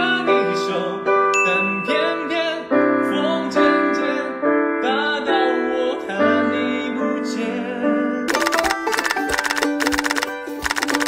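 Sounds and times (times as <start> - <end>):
young man singing softly: 0.0 - 8.3.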